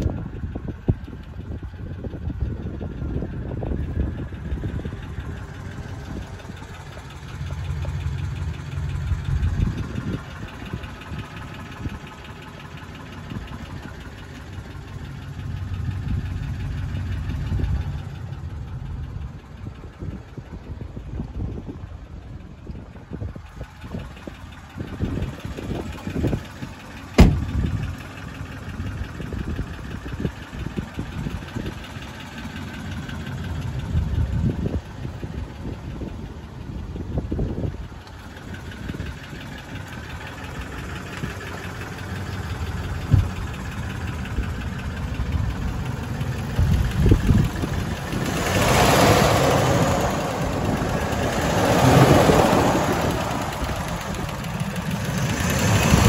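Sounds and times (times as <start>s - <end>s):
pickup engine idling: 0.0s - 56.0s
sharp knock: 27.2s - 27.5s.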